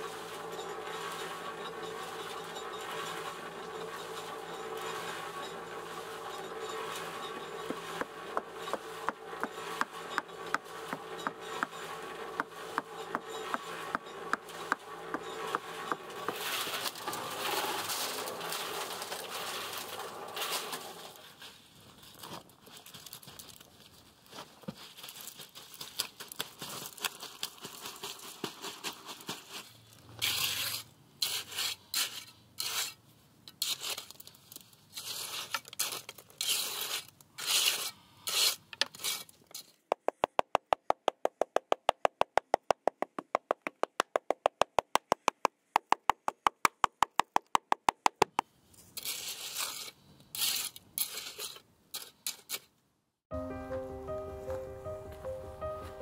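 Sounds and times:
trowel scraping stone: 0.0 - 21.5, 26.8 - 39.9, 48.1 - 52.7
rapid even tapping: 39.9 - 48.4.

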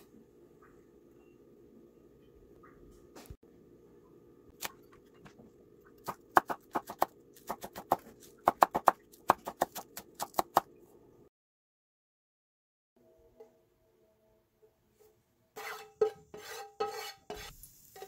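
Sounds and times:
knife chopping on cutting board: 6.0 - 10.6.

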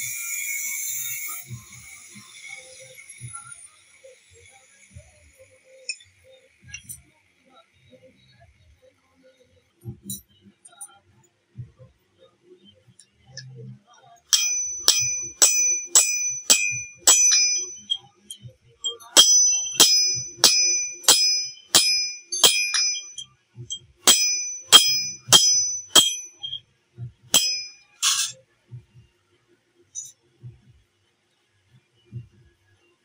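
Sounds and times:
hammer striking metal on anvil: 14.3 - 18.1, 18.8 - 26.6, 27.3 - 28.3.

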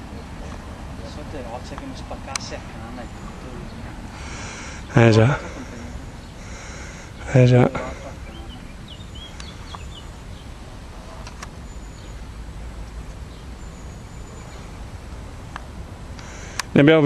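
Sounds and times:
bird chirps: 0.0 - 15.3
river background noise: 0.0 - 17.0
faint clicks: 9.3 - 9.9, 15.5 - 16.8.

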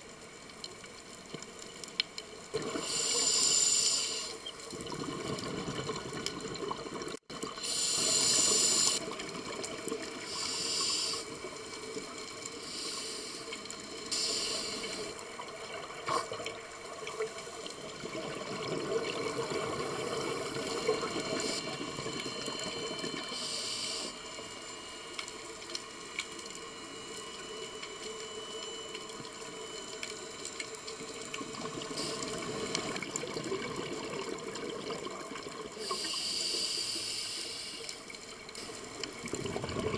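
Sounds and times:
underwater hiss: 2.7 - 4.4, 7.5 - 9.1, 10.2 - 11.4, 12.5 - 15.2, 19.6 - 21.8, 23.3 - 24.4, 31.9 - 32.9, 35.7 - 39.1
exhaled bubbles underwater: 4.6 - 10.4, 14.8 - 23.4, 31.1 - 36.0, 38.9 - 39.9.

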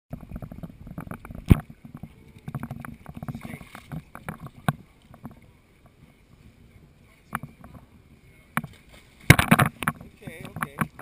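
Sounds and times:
irregular clicks and knocks: 8.6 - 11.0.

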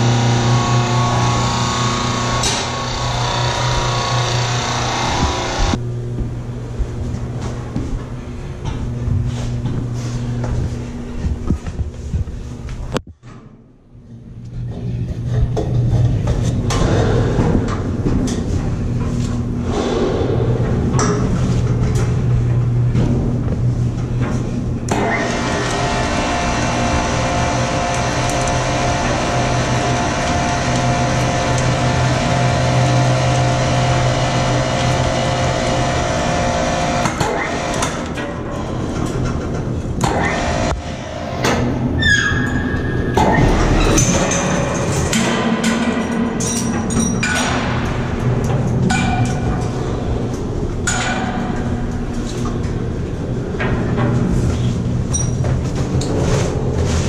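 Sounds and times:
wind turbine machinery hum: 0.0 - 42.2, 43.0 - 57.0.

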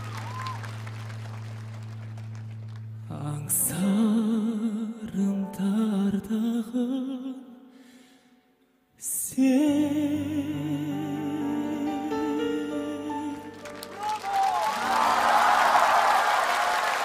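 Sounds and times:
man singing a ballad: 3.1 - 7.5.

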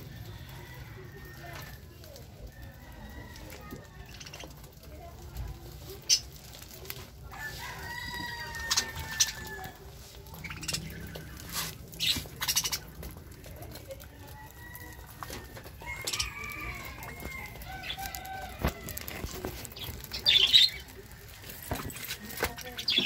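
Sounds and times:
wings fluttering: 1.6 - 23.0
budgerigars chirping: 10.4 - 11.4, 12.0 - 12.9.

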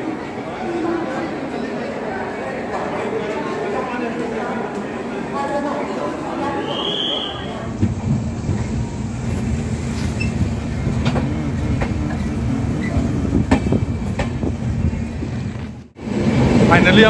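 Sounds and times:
train rumbling on rails: 6.0 - 17.0.

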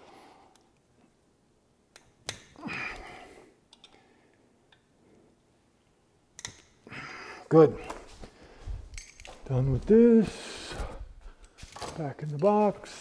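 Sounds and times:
screwdriver metal clicks: 6.4 - 6.7.

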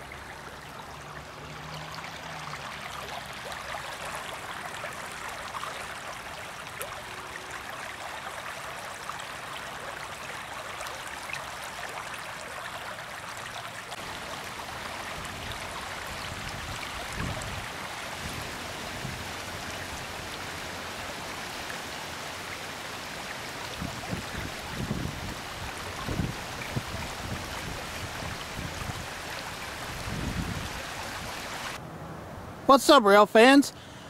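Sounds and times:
stream splashing over rocks: 0.0 - 31.8
wind buffeting microphone: 16.2 - 19.4, 23.7 - 31.6.

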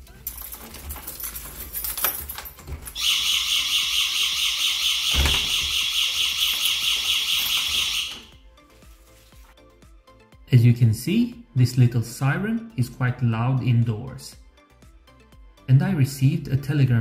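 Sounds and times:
high-pitched alarm siren: 3.0 - 8.4
door handle clicking: 4.8 - 8.3.

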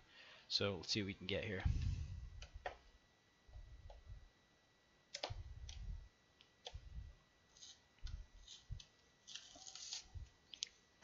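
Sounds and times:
plastic crinkle: 8.4 - 10.7.

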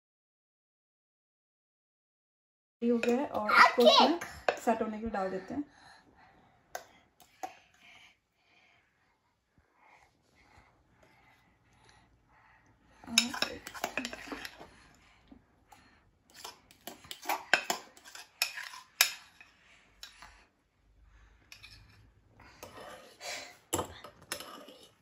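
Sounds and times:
spoon scraping a glass bowl: 13.1 - 14.7, 16.3 - 20.2, 21.5 - 22.0, 22.6 - 23.2, 23.8 - 25.0.

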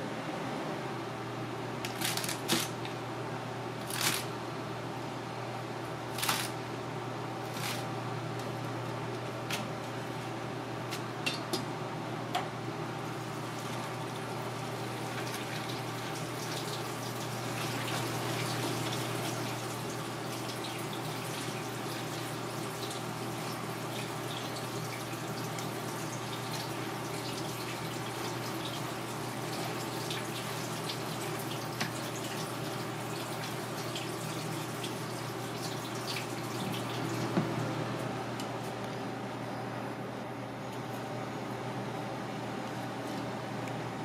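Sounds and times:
steady kitchen hum: 0.0 - 44.0
kitchen tap running water: 13.1 - 37.6.

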